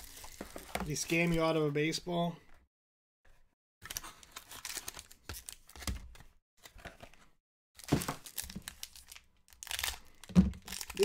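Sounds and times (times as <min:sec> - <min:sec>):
foil wrapper crinkling and tearing: 0:03.8 - 0:05.8, 0:07.8 - 0:11.0.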